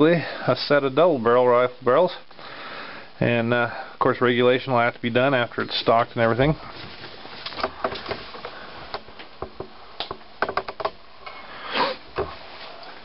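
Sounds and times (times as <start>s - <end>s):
clicks and knocks of handling: 7.4s - 11.0s.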